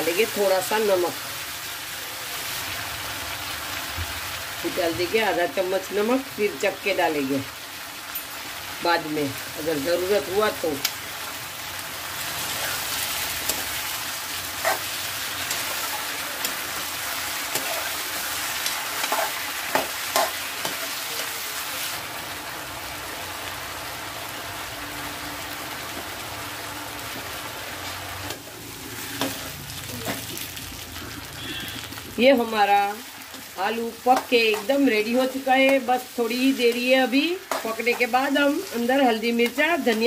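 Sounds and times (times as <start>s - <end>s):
potatoes sizzling in oil: 0.0s - 40.0s
steel spoon scraping a pan: 12.4s - 21.0s, 28.9s - 29.6s, 36.5s - 38.7s.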